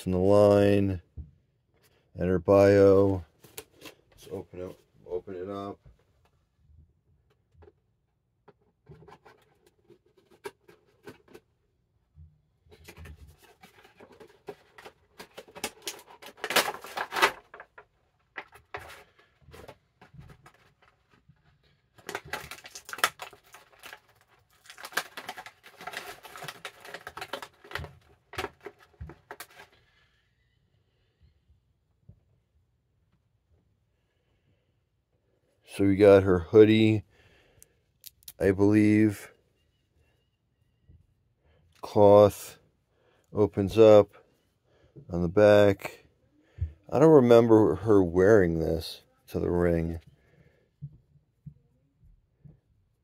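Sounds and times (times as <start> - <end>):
plastic packaging crinkling and tearing: 13.6 - 17.8, 21.9 - 29.8.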